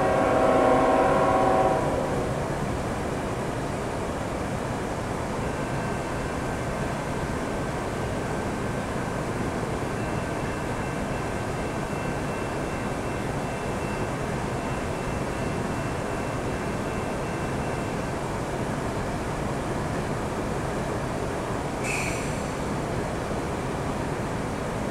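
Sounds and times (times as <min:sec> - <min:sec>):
freight locomotives rumbling: 0:00.0 - 0:24.9.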